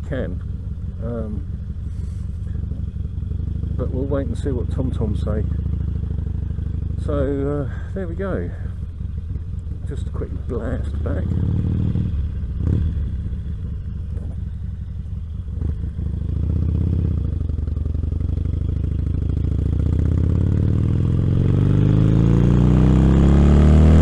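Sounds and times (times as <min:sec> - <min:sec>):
motorcycle engine accelerating: 0:00.0 - 0:24.0.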